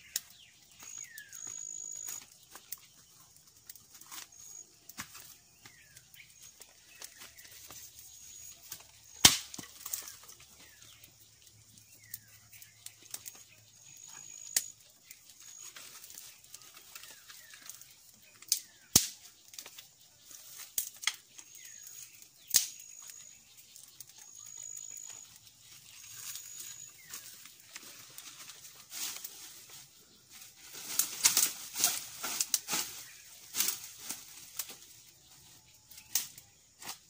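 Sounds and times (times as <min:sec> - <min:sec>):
dry sticks snapping: 0:08.7 - 0:11.0, 0:18.4 - 0:19.9, 0:20.5 - 0:23.2, 0:30.8 - 0:34.8, 0:35.9 - 0:37.0.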